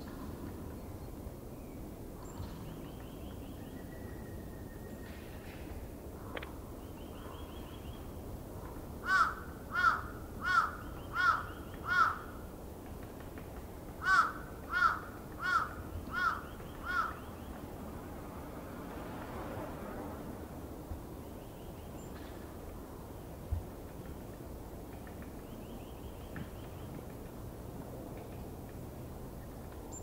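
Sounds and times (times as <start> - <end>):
crow cawing: 9.0 - 12.4, 14.0 - 17.2.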